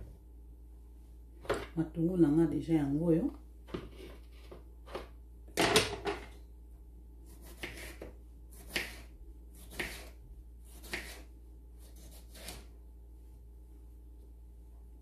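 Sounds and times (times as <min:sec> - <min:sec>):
knife slicing on cutting board: 0:07.3 - 0:10.1, 0:10.7 - 0:12.7.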